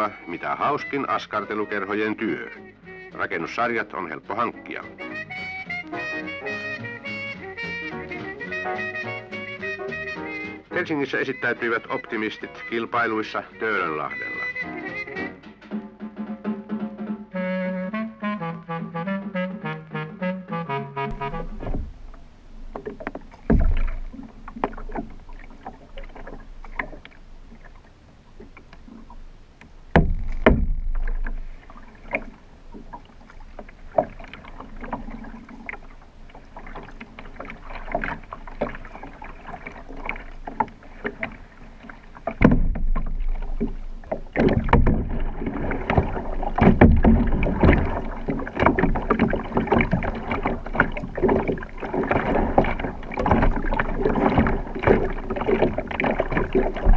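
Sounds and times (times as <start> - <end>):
water splashing: 0.0 - 17.2, 21.1 - 56.9
water lapping against kayak hull: 0.0 - 17.3, 21.1 - 56.9
knocks on kayak hull: 21.1 - 27.2, 29.9 - 33.0, 36.6 - 56.9.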